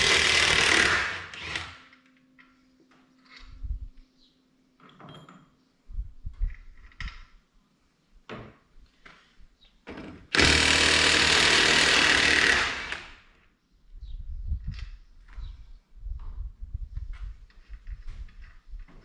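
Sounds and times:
handheld power tool running: 0.0 - 1.9, 10.3 - 13.2.

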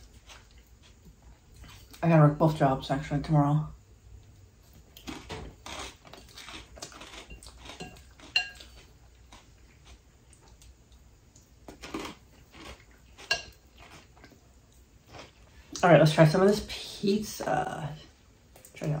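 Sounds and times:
person chewing: 0.0 - 2.0, 4.6 - 15.9
fork scraping ceramic bowl: 5.7 - 8.9.

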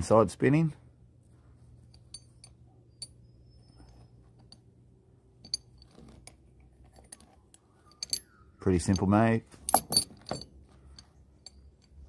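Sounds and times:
metal chain clinking: 1.8 - 4.7, 5.4 - 12.0.

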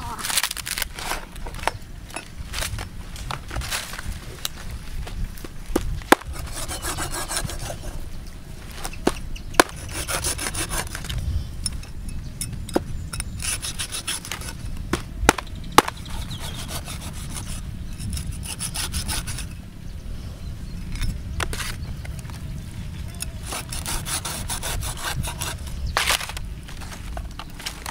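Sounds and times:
cleaver scraping fish skin: 6.1 - 8.0, 8.7 - 11.2, 13.2 - 19.5, 21.0 - 22.1, 23.0 - 27.9.

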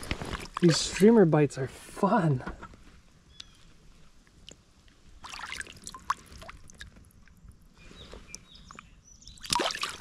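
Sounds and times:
creek water splashing and trickling: 0.0 - 1.6, 3.8 - 10.0.

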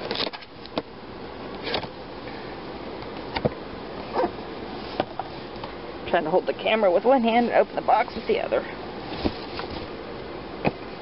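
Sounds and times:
steady background hum: 0.0 - 11.0
cardboard box taps and scrapes: 9.1 - 9.9.

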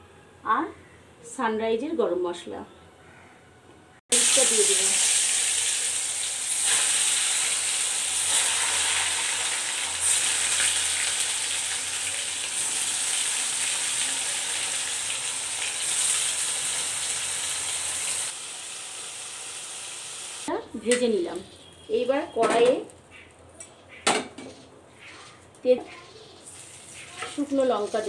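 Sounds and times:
cheese sizzling in hot oil: 4.1 - 20.5, 26.3 - 28.0.

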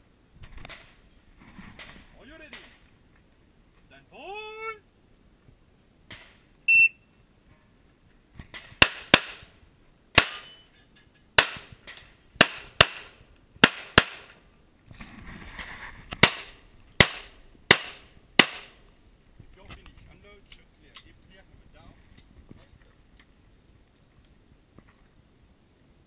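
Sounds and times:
shot timer beep: 6.7 - 7.0
pistol shots with echo: 10.2 - 10.5, 12.4 - 14.4, 16.2 - 18.8.

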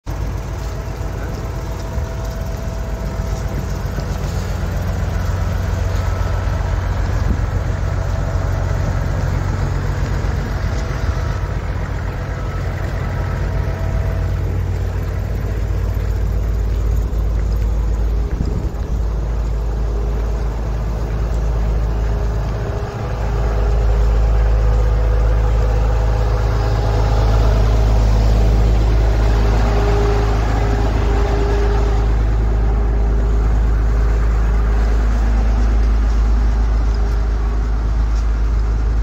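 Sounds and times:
fire truck engine rumble: 0.0 - 39.0.

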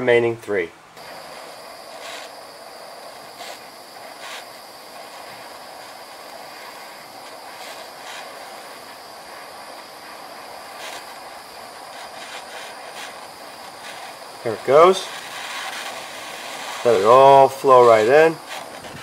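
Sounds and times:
gas torch flame hissing: 1.0 - 19.0
short crackles: 1.0 - 19.0.

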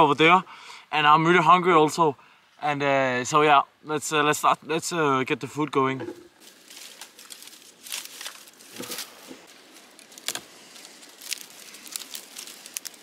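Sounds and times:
brush rustling: 6.0 - 13.0
twigs snapping: 6.4 - 13.0.

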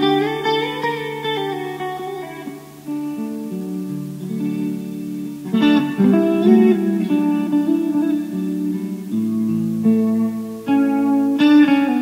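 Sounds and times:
guitar strumming chords: 0.0 - 12.0.

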